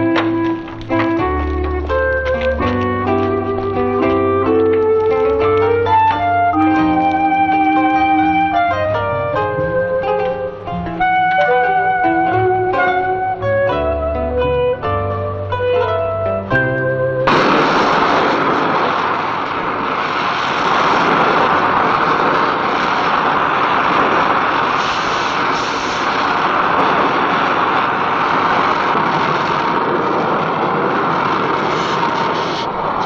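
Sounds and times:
plucked guitar music: 0.0s - 19.0s
gas torch hissing: 17.3s - 33.0s.

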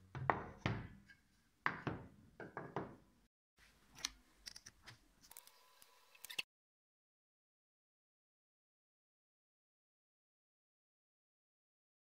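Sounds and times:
boards knocking on table: 0.2s - 1.0s, 1.7s - 3.0s.

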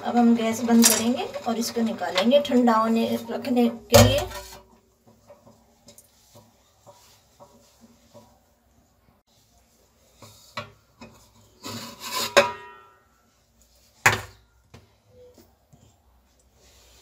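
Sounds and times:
metal tin scraping against pot: 11.6s - 12.9s.

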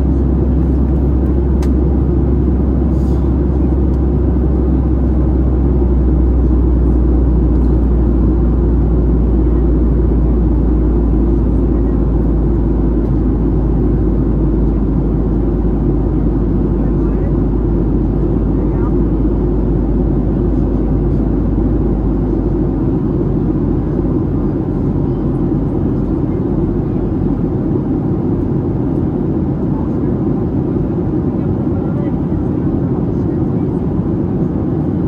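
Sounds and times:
airflow over fuselage: 0.0s - 35.0s
airplane cabin engine rumble: 0.0s - 35.0s.

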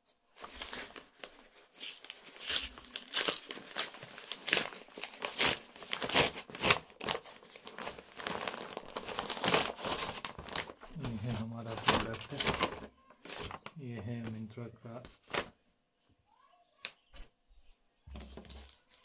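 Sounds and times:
paper envelope tearing and crinkling: 0.4s - 13.7s, 15.2s - 15.5s.

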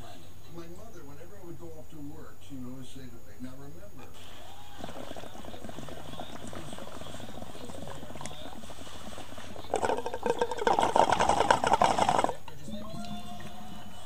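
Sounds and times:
water bubbling in a bong: 4.1s - 14.0s.

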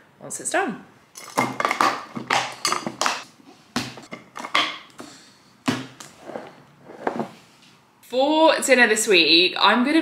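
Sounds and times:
glass containers clacking on stone: 1.2s - 3.3s
containers knocking on worktop: 1.2s - 4.9s.

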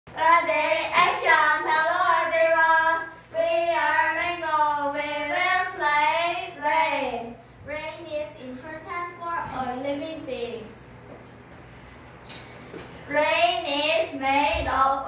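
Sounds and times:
girls singing together: 0.1s - 7.4s, 13.1s - 15.0s.

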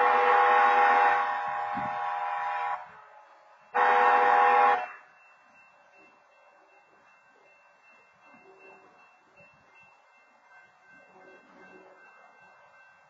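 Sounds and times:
locomotive air horn blasts: 0.0s - 3.2s, 3.8s - 5.0s.

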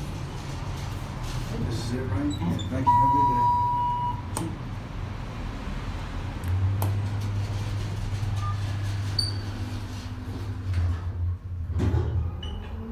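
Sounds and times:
elevator humming: 2.6s - 4.3s
short high beep: 2.8s - 4.2s.

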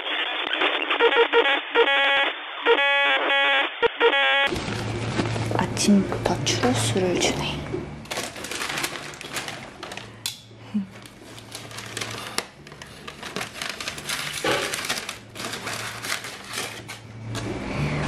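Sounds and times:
paper bag crinkling: 4.5s - 5.8s, 8.0s - 10.2s, 10.9s - 17.4s.

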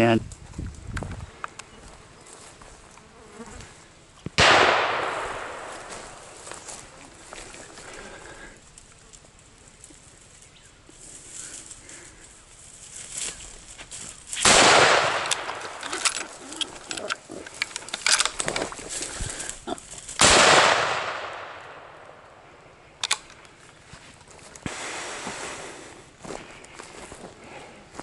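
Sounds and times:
rifle shots: 4.4s - 6.4s, 14.4s - 16.4s, 20.2s - 22.3s.

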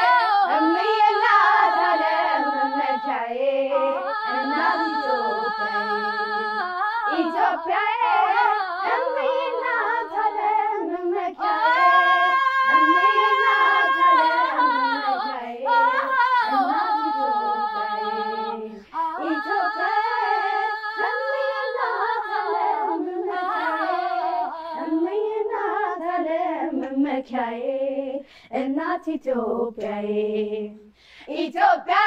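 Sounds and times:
woman singing unaccompanied: 0.0s - 32.0s
singer breath: 18.7s - 19.0s, 28.2s - 28.6s, 30.9s - 31.3s.

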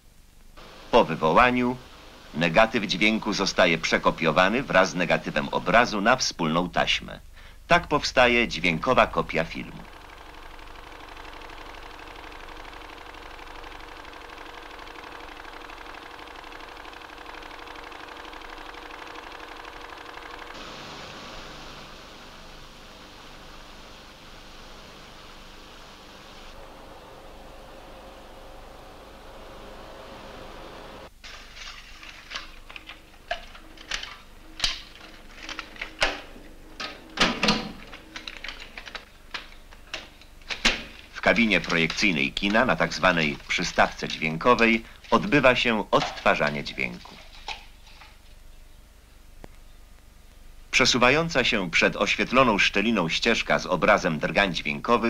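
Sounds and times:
steady hum tones: 0.0s - 31.4s, 32.0s - 46.8s
bright hiss: 0.6s - 5.4s, 19.4s - 31.1s
machinery whirring: 0.6s - 5.8s, 8.8s - 31.1s, 32.1s - 40.4s
rapid flutter: 9.6s - 36.0s
metallic clicks and clunks of projector: 31.6s - 45.3s.

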